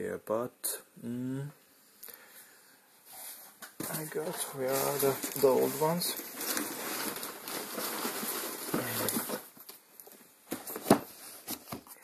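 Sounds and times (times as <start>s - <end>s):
rummaging among tools: 3.8s - 12.0s.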